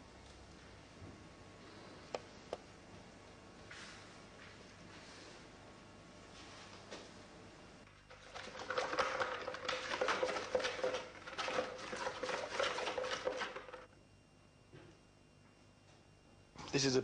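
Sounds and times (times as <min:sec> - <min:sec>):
scraping strokes inside pot: 0:08.2 - 0:13.9.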